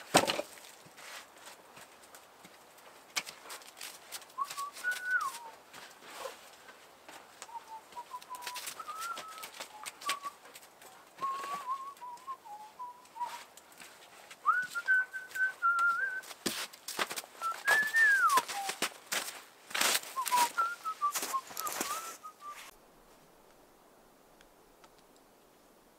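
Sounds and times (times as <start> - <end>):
man whistling a tune: 4.4 - 5.6, 7.5 - 10.4, 11.2 - 13.5, 14.4 - 16.3, 17.4 - 18.8, 20.2 - 22.7.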